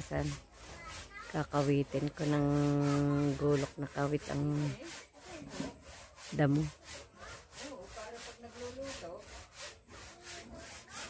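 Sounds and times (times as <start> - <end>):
hand saw cutting wood: 0.0 - 11.0.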